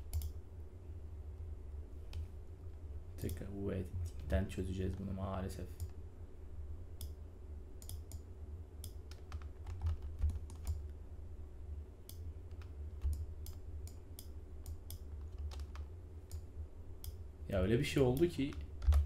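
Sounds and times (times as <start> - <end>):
keyboard and mouse clicking: 0.0 - 0.4, 7.8 - 8.2, 8.8 - 10.9, 12.0 - 17.2, 18.1 - 19.0
steady low hum: 0.0 - 19.0.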